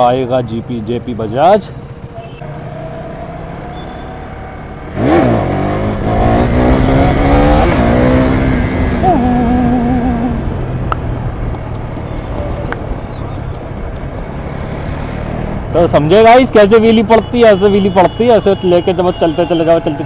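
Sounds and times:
motorcycle engine revving: 2.2 - 12.8.

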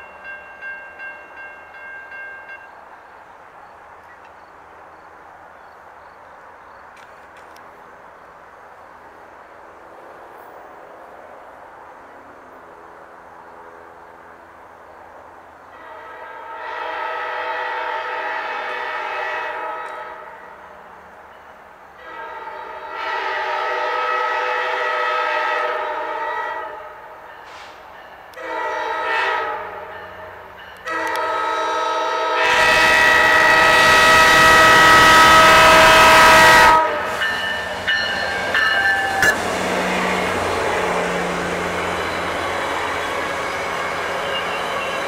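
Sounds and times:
train rolling past: 0.0 - 45.0
locomotive air horn blasts: 15.7 - 20.6, 22.0 - 27.7, 28.3 - 30.0, 30.8 - 41.1.

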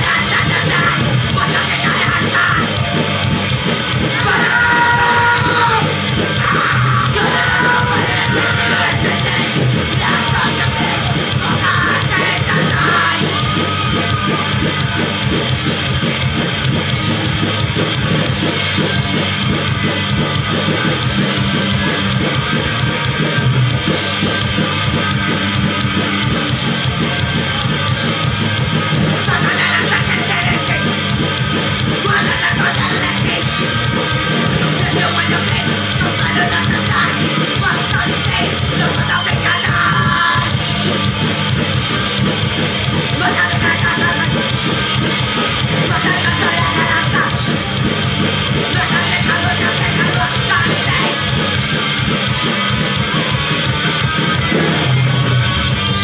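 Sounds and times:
person singing: 0.0 - 3.0, 4.1 - 15.0, 29.2 - 31.0, 32.0 - 40.6, 43.1 - 44.7, 45.4 - 47.6, 48.5 - 51.4
punk rock band playing: 0.0 - 56.0.

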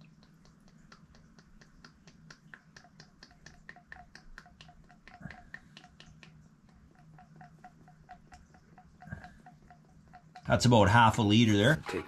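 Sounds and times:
oil glugging through a funnel: 2.8 - 12.0.

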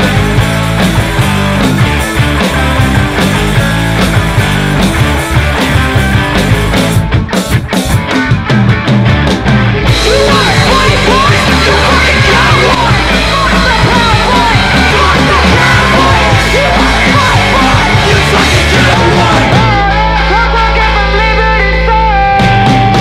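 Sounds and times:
loud punk rock music: 0.0 - 23.0
voices yelling: 9.9 - 19.6.

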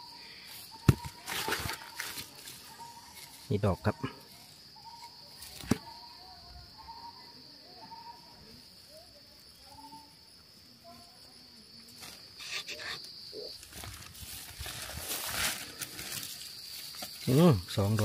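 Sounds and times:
rustling through grass: 0.4 - 3.6, 13.5 - 18.0
metal tool scraping soil: 12.3 - 13.1.

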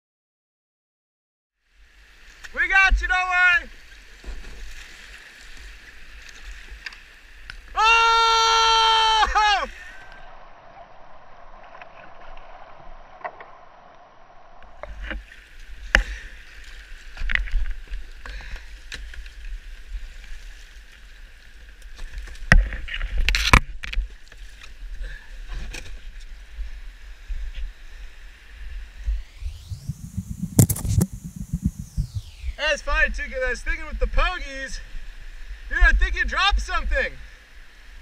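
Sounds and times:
rushing water: 1.6 - 13.2, 14.6 - 29.4
low buffeting rumble on microphone: 28.8 - 34.1.

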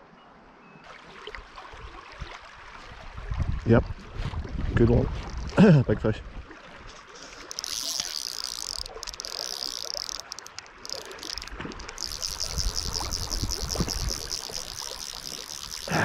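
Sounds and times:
fishing reel ratchet clicking: 5.2 - 5.6, 7.4 - 16.0.

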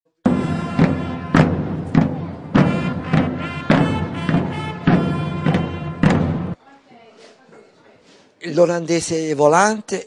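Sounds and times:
held chords: 0.3 - 6.6
slow drum beat: 0.3 - 6.6.

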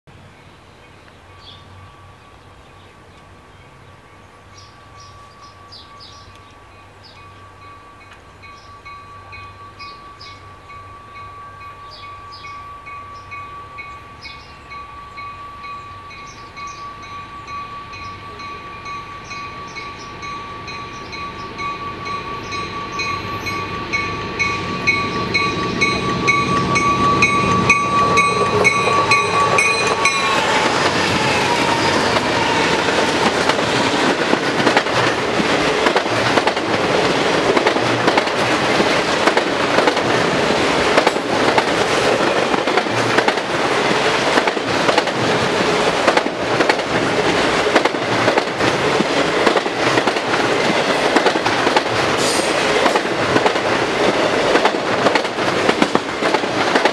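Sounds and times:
diesel locomotives rumbling: 0.1 - 56.9
crossing bell ringing: 4.2 - 35.8.

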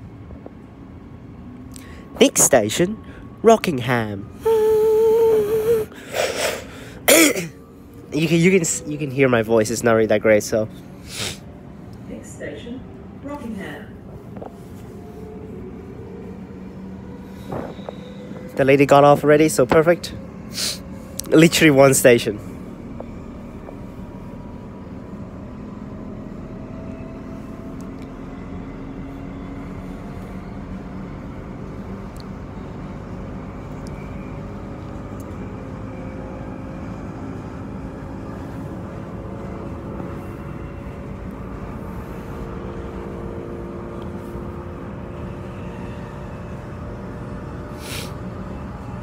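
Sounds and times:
traction drive whine: 0.0 - 49.0
train wheels rumbling on rails: 10.4 - 49.0.

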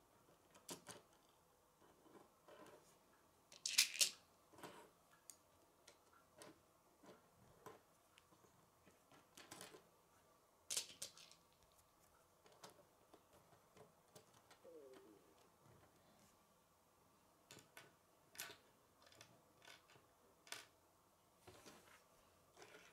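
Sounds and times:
plastic pieces clicking together: 3.5 - 4.2, 10.7 - 11.6.

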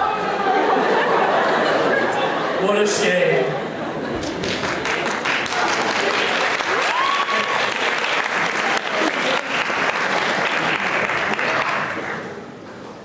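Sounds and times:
audience applauding: 4.1 - 12.5.

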